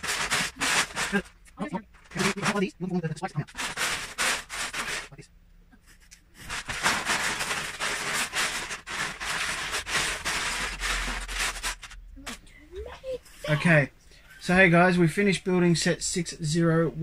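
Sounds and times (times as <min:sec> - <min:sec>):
plastic bricks clattering: 0:00.0 - 0:01.3, 0:06.5 - 0:12.0.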